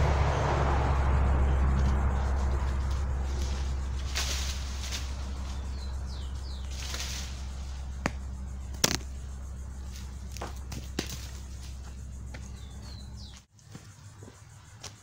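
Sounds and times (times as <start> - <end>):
leaves and branches rustling: 1.8 - 12.6
bird chirping: 5.2 - 13.5
pole knocking on branches: 8.8 - 9.1.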